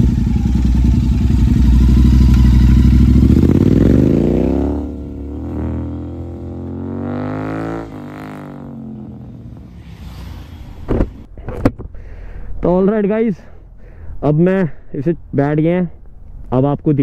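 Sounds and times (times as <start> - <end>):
motorcycle engine accelerating: 0.0 - 11.3.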